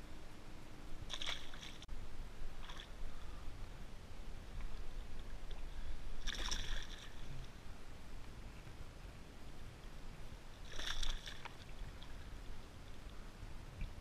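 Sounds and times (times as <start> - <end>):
water splashing: 1.0 - 1.9, 2.5 - 3.0, 5.2 - 7.6, 10.6 - 12.4.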